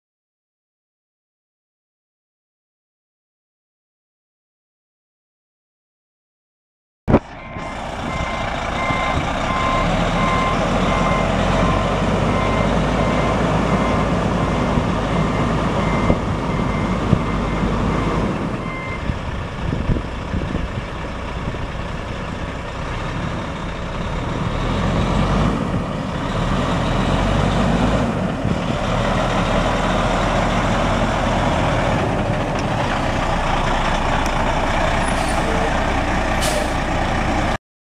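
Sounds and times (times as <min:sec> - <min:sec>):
diesel truck engine running: 0:07.2 - 0:37.6
backup alarm beeping: 0:07.4 - 0:19.1.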